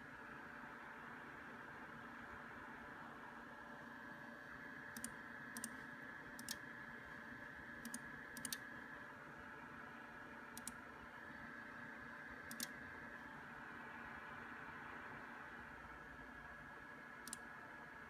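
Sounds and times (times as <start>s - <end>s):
faint steady whine: 0.0s - 18.0s
mouse button clicking: 6.4s - 6.6s, 7.8s - 8.6s, 10.6s - 10.8s, 12.5s - 12.7s, 17.2s - 17.4s.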